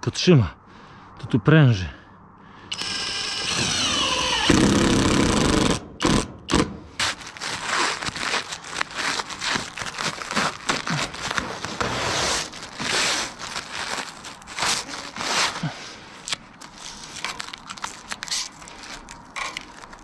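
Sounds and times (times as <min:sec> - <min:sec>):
plastic film peeling and crinkling: 0:06.9 - 0:20.0.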